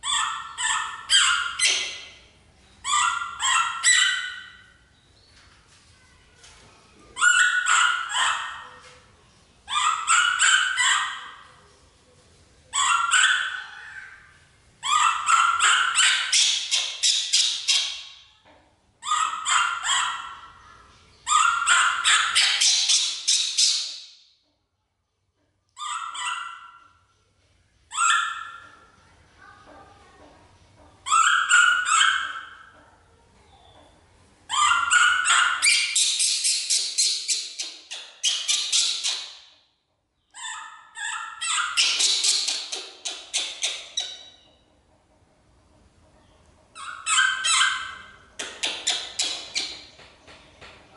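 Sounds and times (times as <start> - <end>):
baby monkey crying calls: 2.8 - 4.6, 12.8 - 17.9, 31.0 - 32.7, 34.5 - 39.3, 40.4 - 44.3, 46.8 - 49.8.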